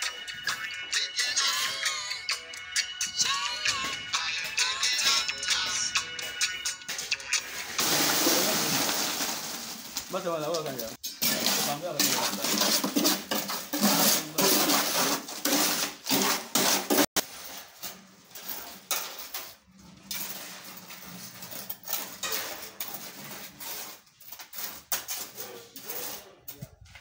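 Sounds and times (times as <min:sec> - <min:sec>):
wet concrete scraping in wheelbarrow: 0:07.4 - 0:26.6.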